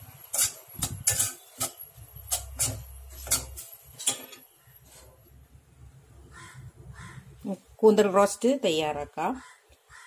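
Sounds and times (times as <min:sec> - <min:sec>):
metal spoon clinking on pot: 0:00.2 - 0:04.5.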